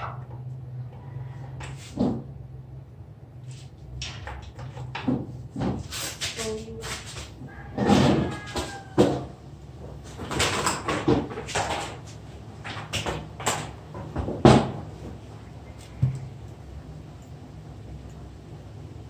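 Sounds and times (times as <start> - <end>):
hard objects knocking and clattering: 3.9 - 5.9, 7.8 - 15.0.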